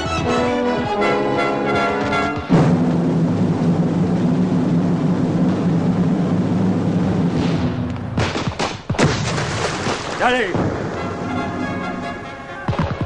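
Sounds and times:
gunshots: 0:07.3 - 0:11.2.

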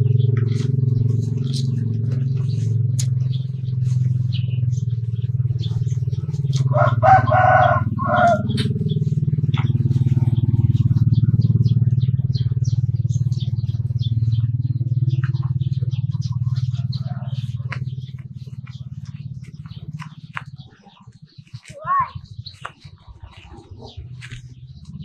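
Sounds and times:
water buffaloes chewing grass: 0:00.0 - 0:11.0, 0:13.1 - 0:21.8, 0:22.4 - 0:25.0
low engine-like hum: 0:00.0 - 0:25.0
rooster crowing: 0:06.6 - 0:08.6.

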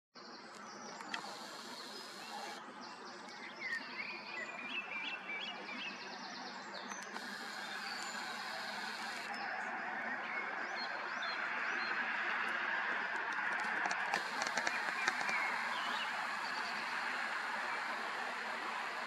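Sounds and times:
birds chirping: 0:00.6 - 0:02.6, 0:06.4 - 0:09.5, 0:14.0 - 0:19.0
camera zoom motor hiss: 0:01.0 - 0:02.6, 0:07.1 - 0:09.3, 0:14.2 - 0:19.0.

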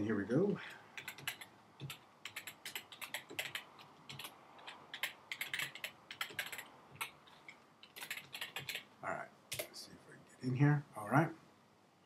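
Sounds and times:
keyboard typing clicks: 0:01.0 - 0:08.9.

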